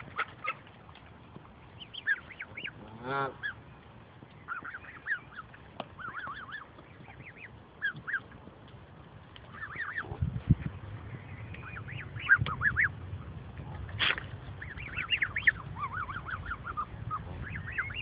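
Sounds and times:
goslings peeping: 0:00.0 - 0:18.0
low rumble: 0:00.0 - 0:18.0.

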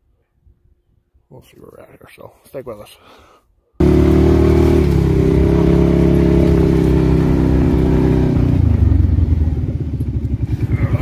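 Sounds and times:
vehicle engine running loud: 0:03.8 - 0:11.0.

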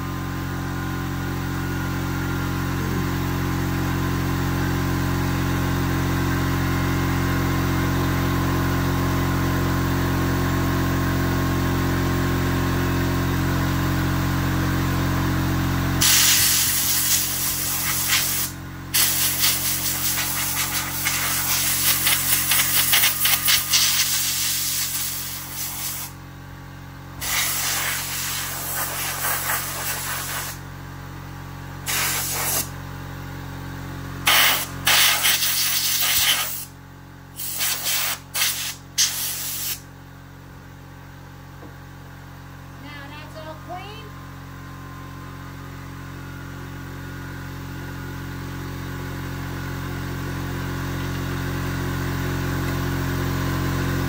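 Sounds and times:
motor hum: 0:00.0 - 0:37.8
compressed air blasts hissing: 0:16.0 - 0:26.2, 0:27.2 - 0:30.6, 0:31.9 - 0:32.7, 0:34.2 - 0:36.7, 0:37.4 - 0:39.8.

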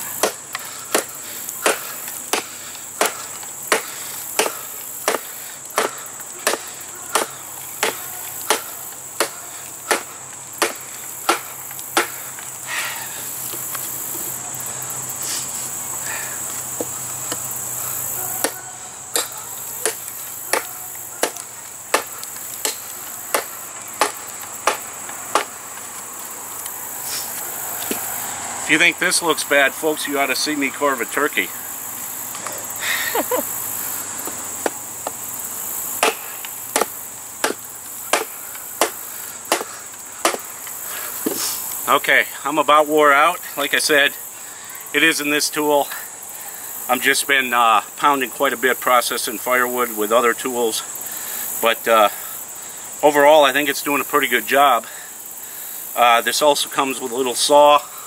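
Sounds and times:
insects shrilling: 0:00.0 - 0:58.0
machete chopping into log: 0:00.2 - 0:12.2, 0:18.4 - 0:25.6, 0:36.0 - 0:40.5.

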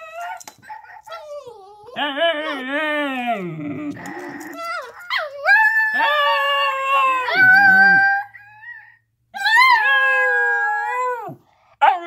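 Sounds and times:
dogs howling: 0:00.0 - 0:12.0
dog grumbling: 0:03.3 - 0:04.9.

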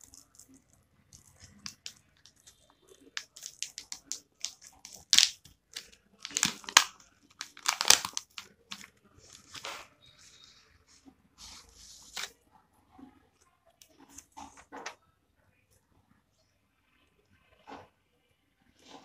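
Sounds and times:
plastic pouch crinkling: 0:00.0 - 0:09.7.

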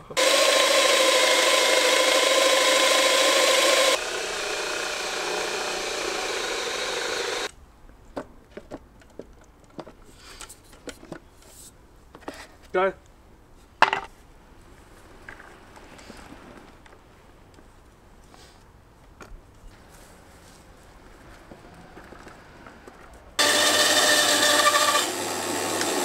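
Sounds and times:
electric drill whining: 0:00.2 - 0:07.5, 0:23.4 - 0:26.0.

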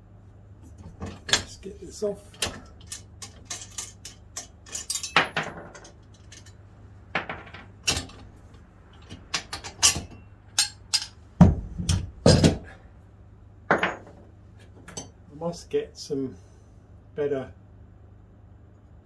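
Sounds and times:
metal bar clanking on metal: 0:09.0 - 0:11.2.

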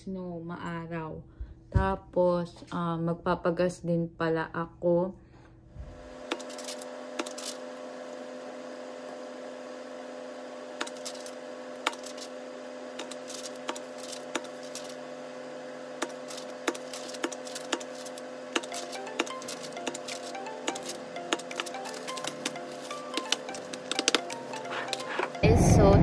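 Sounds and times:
low room hum: 0:00.0 - 0:26.0
paper crackling and snapping: 0:10.8 - 0:12.3, 0:13.0 - 0:15.0, 0:16.0 - 0:25.1.

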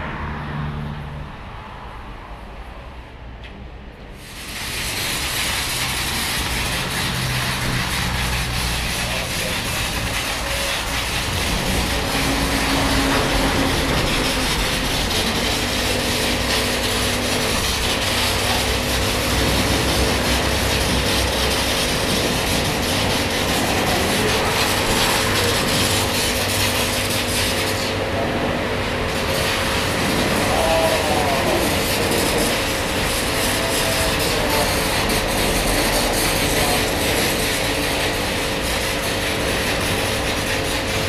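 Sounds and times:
foam lance spraying hiss: 0:04.2 - 0:27.9.

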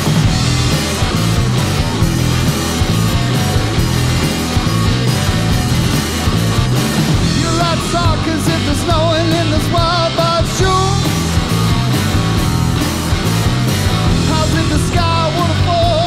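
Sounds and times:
drum kit: 0:00.0 - 0:16.0
electric guitar: 0:00.0 - 0:16.0
man singing: 0:07.2 - 0:11.3, 0:14.1 - 0:16.0.

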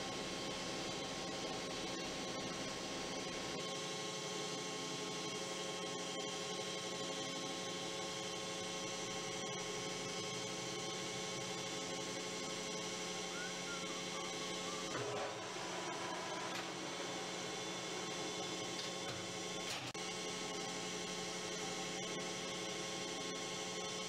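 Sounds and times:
electrical hum: 0:08.6 - 0:24.0.

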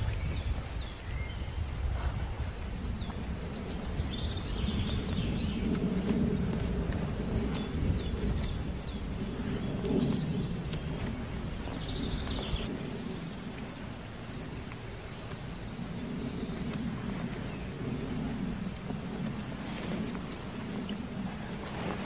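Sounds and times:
heavy canvas rustling: 0:16.0 - 0:22.0
small bird chirping trill: 0:20.7 - 0:21.2.

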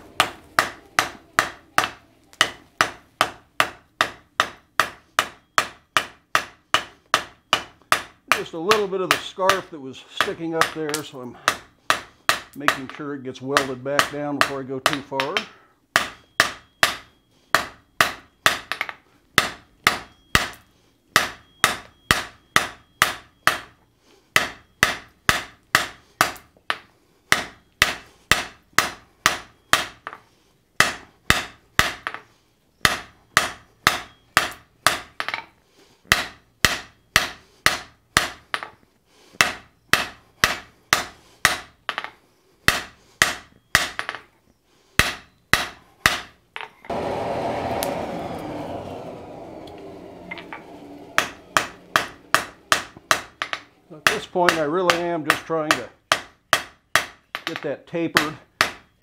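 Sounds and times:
hammer striking metal on anvil: 0:00.2 - 0:13.0, 0:13.6 - 0:20.6, 0:21.2 - 0:23.8, 0:49.1 - 0:57.6.

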